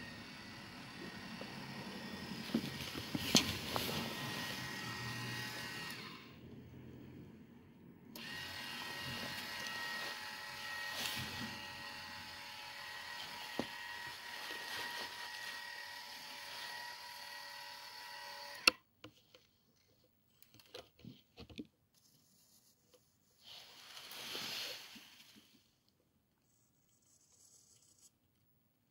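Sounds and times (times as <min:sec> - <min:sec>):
small electric motor whining: 0:00.0 - 0:06.4, 0:08.2 - 0:18.8.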